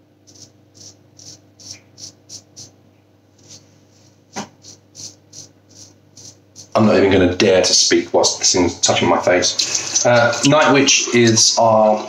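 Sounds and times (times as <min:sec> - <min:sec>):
razor scraping beard stubble: 0:00.3 - 0:02.7, 0:03.4 - 0:03.7, 0:04.3 - 0:06.9.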